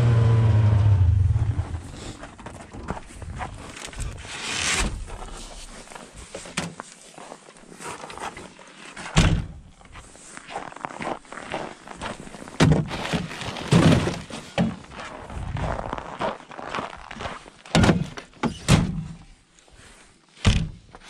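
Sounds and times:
knocks and thunks: 9.2 - 9.6, 12.6 - 14.8, 17.7 - 19.2, 20.4 - 20.8.

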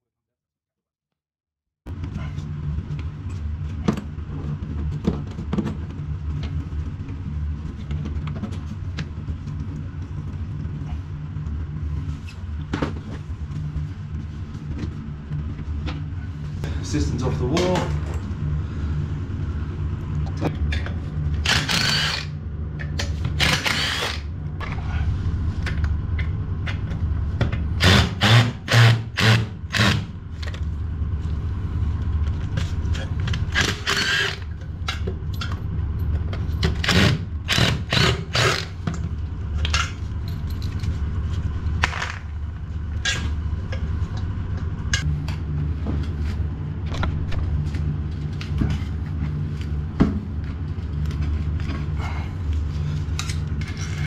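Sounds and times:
low hum: 1.9 - 54.0
power tool bursts: 21.4 - 22.3, 23.4 - 24.2, 36.8 - 38.7.

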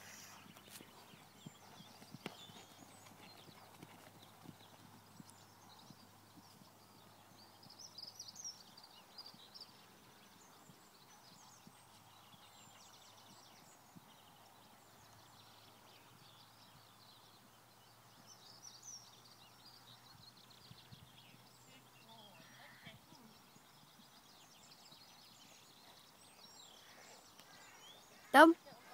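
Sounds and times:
faint high bird calls: 20.9 - 23.4, 25.1 - 28.9.

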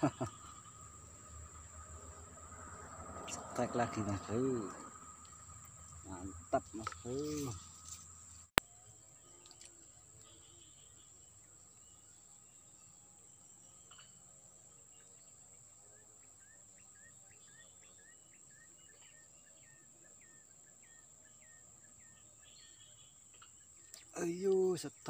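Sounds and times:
high-pitched insect drone: 0.0 - 8.4.

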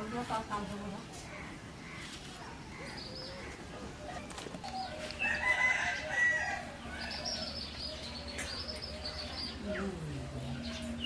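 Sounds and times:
rooster crowing: 5.2 - 6.8.

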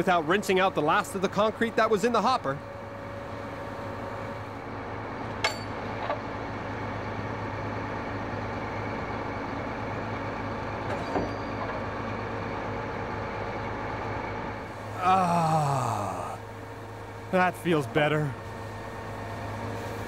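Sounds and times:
sharp metallic clank: 5.4 - 5.8
diesel engine running: 11.9 - 20.0.

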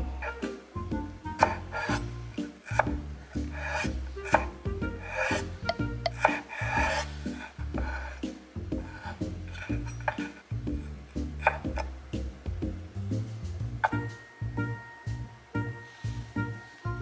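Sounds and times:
background music with bass: 0.0 - 17.0
knife cutting on wooden board: 1.4 - 11.9.

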